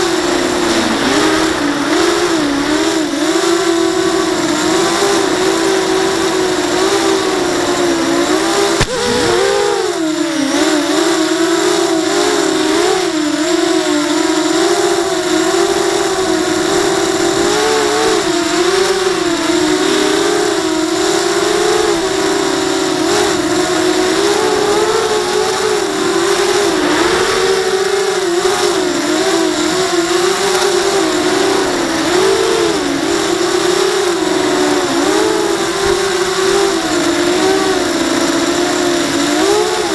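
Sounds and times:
drone motors buzzing whine: 0:00.0 - 0:39.9
sharp click: 0:08.8 - 0:09.6.

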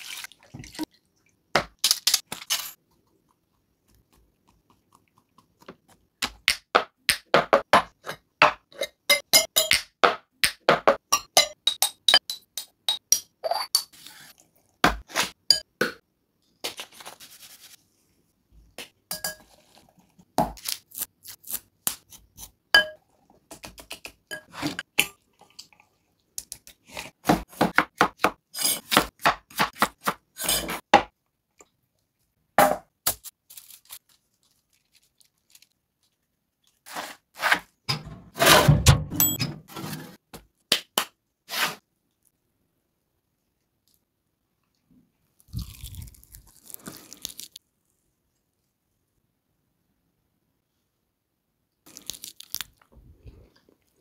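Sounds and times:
metal spoon clinking on glass jars: 0:08.8 - 0:09.8, 0:11.1 - 0:13.9, 0:19.1 - 0:19.5, 0:22.8 - 0:23.0.

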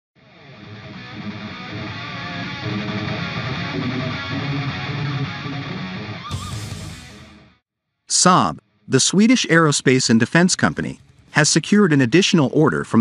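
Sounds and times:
strummed guitar music: 0:00.2 - 0:07.6.

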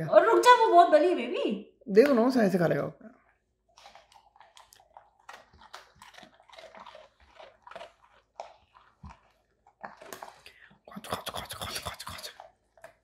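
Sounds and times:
dog crunching biscuit: 0:03.6 - 0:13.0.

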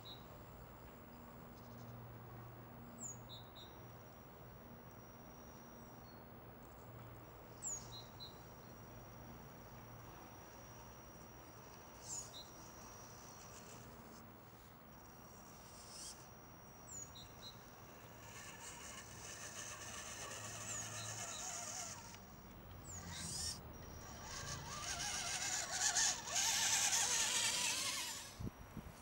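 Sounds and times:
rc truck motor whining: 0:09.4 - 0:28.5.

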